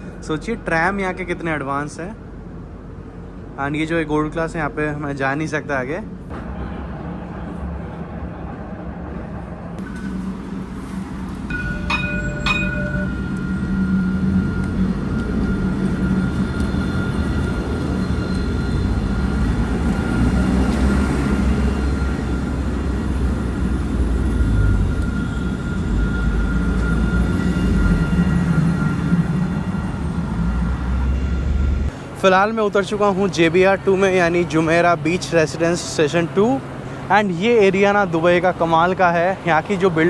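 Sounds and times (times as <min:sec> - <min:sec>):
tram rumbling: 0:00.0 - 0:40.0
electric whine: 0:09.8 - 0:31.9.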